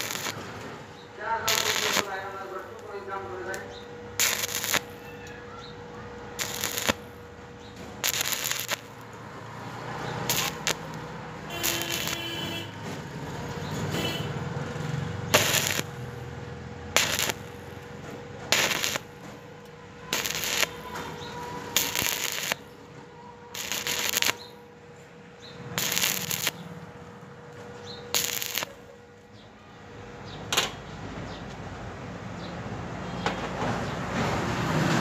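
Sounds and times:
faint steady hum: 0:00.0 - 0:09.4
welding arc crackling: 0:00.0 - 0:22.8, 0:23.5 - 0:24.6, 0:25.6 - 0:26.8, 0:27.5 - 0:29.0.

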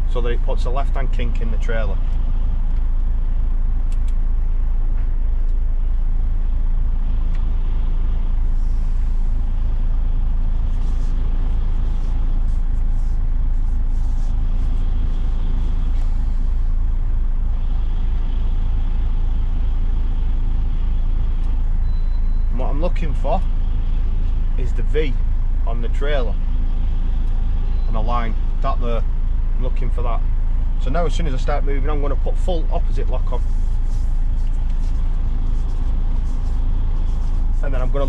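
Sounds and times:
diesel engine running at low revs: 0:00.0 - 0:38.0
light clicks: 0:03.9 - 0:04.2.

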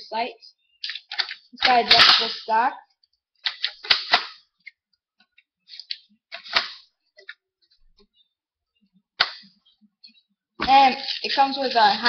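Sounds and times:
toy gun clicks and knocks: 0:00.8 - 0:02.5, 0:03.4 - 0:04.8.

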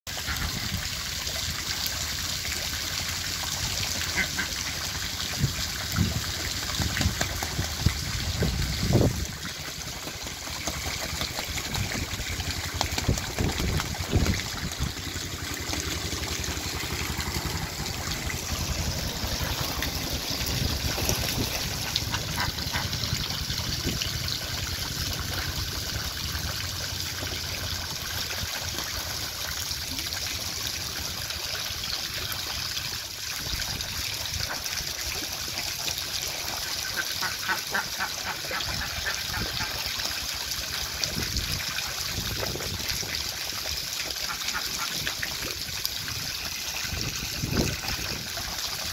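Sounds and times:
ducks splashing in water: 0:00.1 - 0:25.5, 0:33.4 - 0:48.9
running water: 0:00.1 - 0:48.9.

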